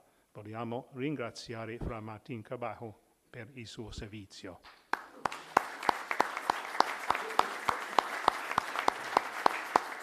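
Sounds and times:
sharp claps: 4.6 - 10.0
audience applauding: 4.9 - 10.0.

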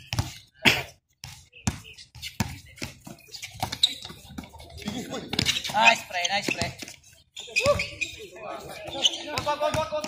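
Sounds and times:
basketball bouncing on hard court: 0.0 - 0.4, 1.2 - 6.9, 8.8 - 10.0.

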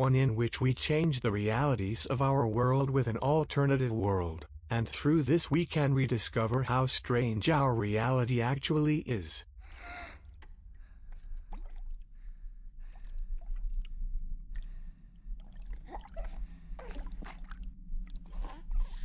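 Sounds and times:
wet gurgles and squelches: 9.6 - 19.0.

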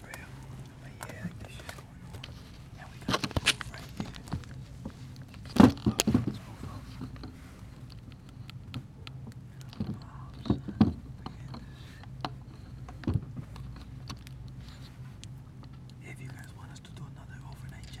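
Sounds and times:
phone rubbing against clothing: 0.0 - 8.5, 9.7 - 15.2
steady low hum: 0.0 - 18.0.

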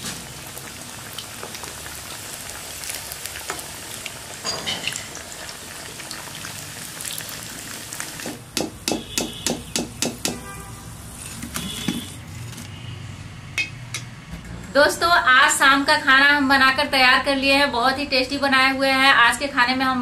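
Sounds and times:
food deep-frying in oil: 0.0 - 10.3, 10.9 - 12.6
metal spoon knocking on pan: 8.5 - 10.4, 13.6 - 14.1.

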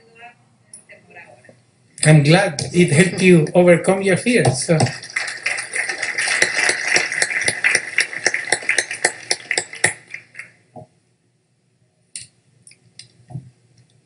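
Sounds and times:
audience applauding: 4.6 - 10.6.

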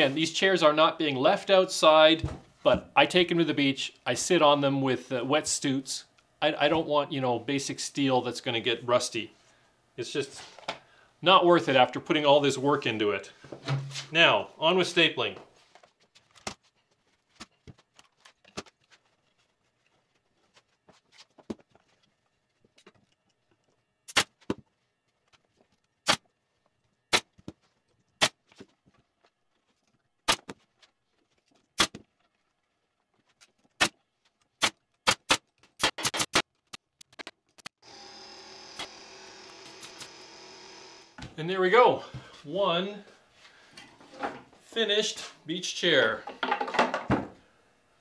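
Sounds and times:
pneumatic stapler shots: 24.1 - 24.4, 34.6 - 36.4.

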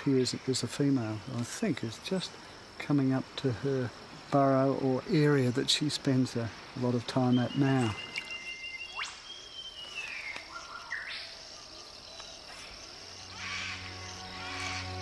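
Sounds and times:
high insect drone: 0.0 - 15.0
whistled bird calls: 7.2 - 11.3
soft background music: 13.1 - 15.0.

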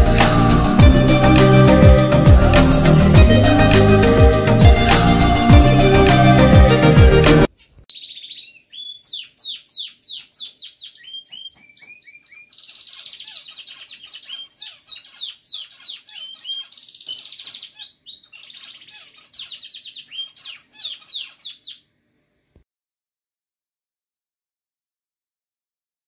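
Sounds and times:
cage bird singing: 7.9 - 21.9.

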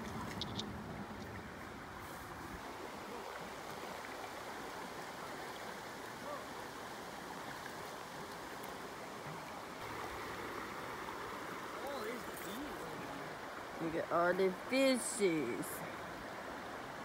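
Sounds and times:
river rippling over rocks: 0.0 - 17.0.

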